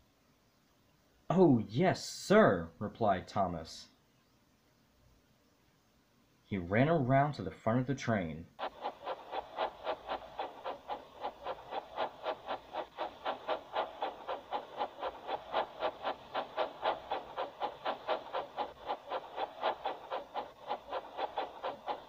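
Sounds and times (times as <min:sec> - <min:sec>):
steam engine chuffing: 0:08.6 - 0:22.0.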